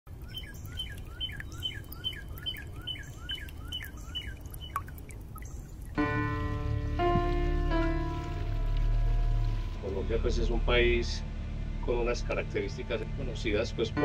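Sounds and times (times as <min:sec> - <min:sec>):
bird chirping: 0:00.1 - 0:06.0
low steady rumble: 0:00.1 - 0:14.0
soft sustained music: 0:00.2 - 0:14.0.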